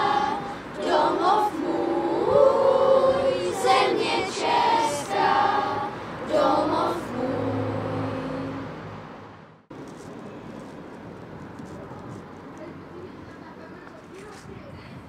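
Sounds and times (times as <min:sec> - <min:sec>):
choir singing a cappella: 0:00.0 - 0:08.9.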